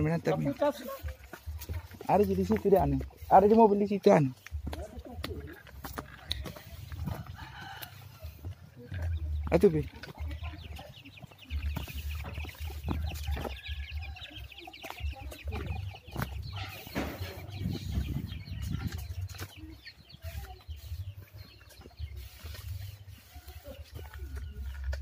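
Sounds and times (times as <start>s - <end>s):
low microphone rumble: 15.0s - 21.2s.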